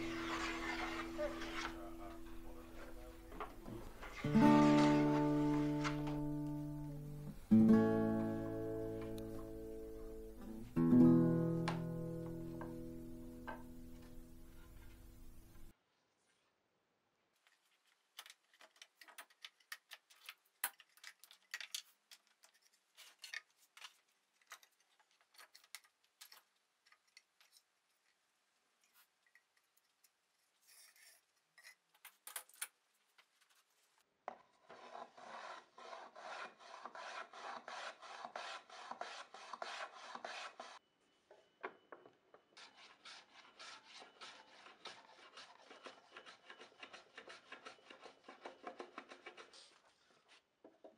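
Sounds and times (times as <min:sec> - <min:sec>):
wood being sanded by hand: 0:00.0 - 0:01.7, 0:34.8 - 0:40.8, 0:42.6 - 0:49.6
wooden parts clicking: 0:18.2 - 0:23.5.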